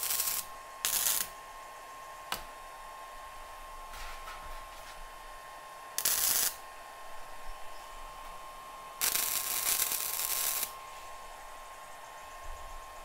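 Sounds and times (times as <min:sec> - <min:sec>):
welder arc crackling: 0:00.0 - 0:01.4, 0:06.0 - 0:06.6, 0:09.0 - 0:10.9
faint steady whine: 0:00.0 - 0:13.0.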